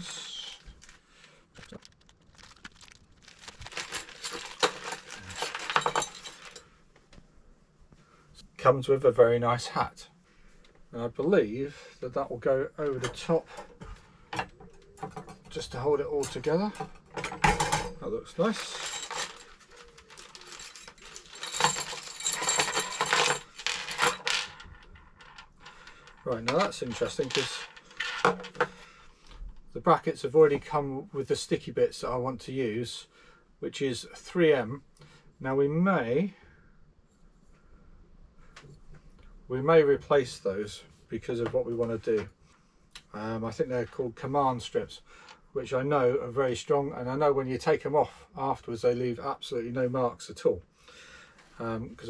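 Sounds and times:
packaging rustling: 0:00.0 - 0:06.6, 0:18.4 - 0:24.0
small parts clicking and clinking: 0:00.0 - 0:06.7, 0:16.2 - 0:29.5.

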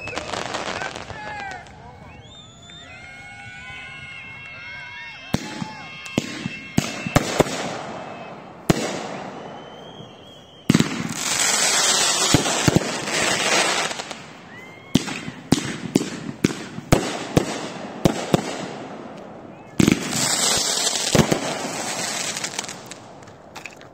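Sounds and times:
firework bangs: 0:05.2 - 0:23.9
firework cracks: 0:05.2 - 0:23.9
firework hissing: 0:05.4 - 0:18.8, 0:19.8 - 0:23.0.

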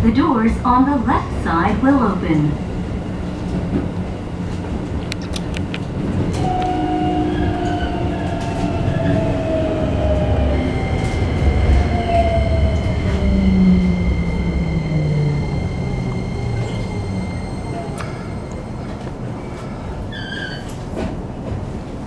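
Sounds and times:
train running and rail noise: 0:00.0 - 0:22.0
train motors whining: 0:05.1 - 0:19.2
steady high tone: 0:06.4 - 0:19.0.

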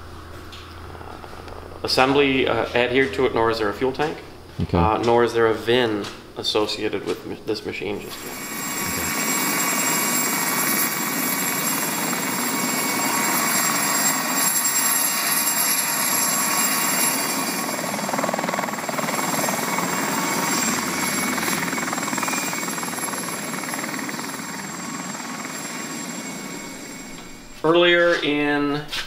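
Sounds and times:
helicopter rotor and engine: 0:08.2 - 0:27.5.

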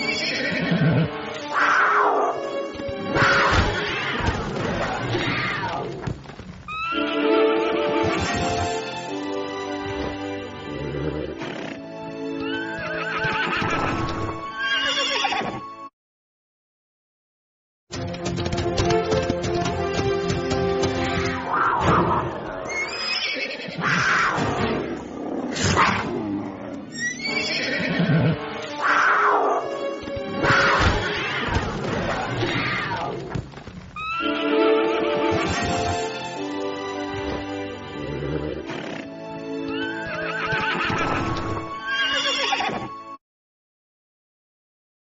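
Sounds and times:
horse whinnying: 0:00.0 - 0:02.4, 0:03.1 - 0:06.0, 0:06.7 - 0:07.4, 0:09.8 - 0:15.7, 0:21.0 - 0:26.3, 0:26.9 - 0:29.8, 0:30.4 - 0:33.3, 0:34.0 - 0:34.7, 0:37.0 - 0:43.0
background music: 0:00.0 - 0:06.0, 0:06.7 - 0:15.9, 0:17.9 - 0:23.6, 0:24.3 - 0:33.3, 0:34.0 - 0:43.2
cougar snarling and growling: 0:09.8 - 0:11.9, 0:23.7 - 0:27.0, 0:37.0 - 0:39.2
hoofbeats: 0:17.9 - 0:21.8.

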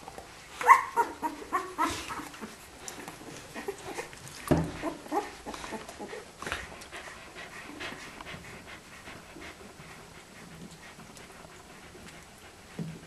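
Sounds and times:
dog whimpering: 0:00.6 - 0:06.3
dog panting: 0:01.0 - 0:13.0.

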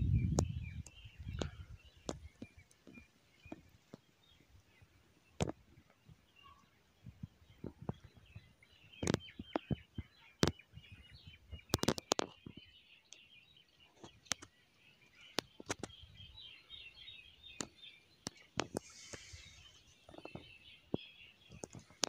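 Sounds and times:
birds chirping: 0:00.0 - 0:22.0
sharp clicks and knocks: 0:11.6 - 0:12.6.

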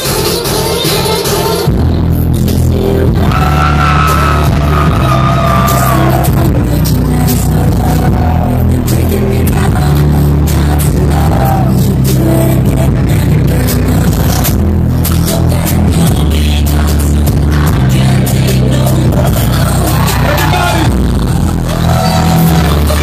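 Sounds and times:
electronic dance music: 0:00.0 - 0:23.0.

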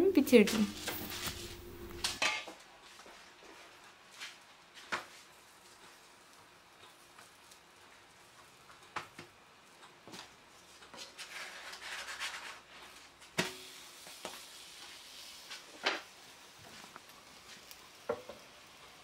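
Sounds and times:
hands rubbing dough: 0:11.0 - 0:13.0.

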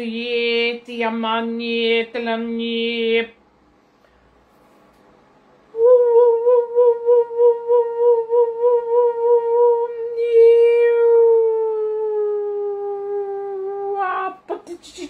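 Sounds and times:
woman singing long wavering tone: 0:05.7 - 0:14.4.

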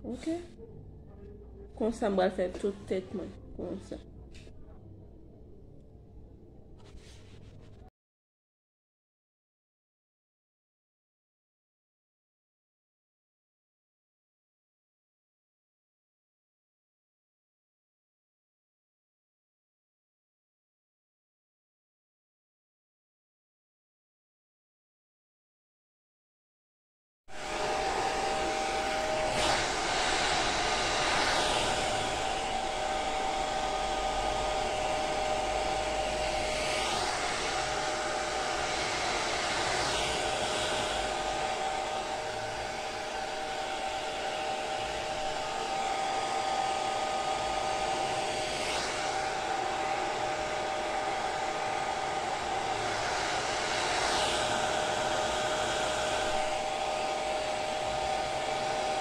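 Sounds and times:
hair dryer running: 0:27.3 - 0:59.0.

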